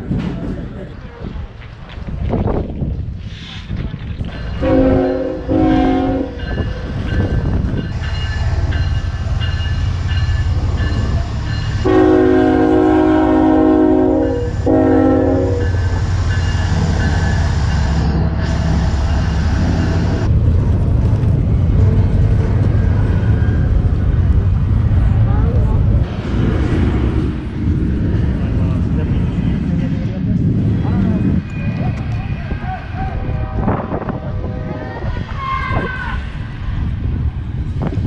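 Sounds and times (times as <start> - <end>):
train rumbling past: 0.0 - 38.0
locomotive horn blasts: 4.6 - 6.4, 11.8 - 15.8.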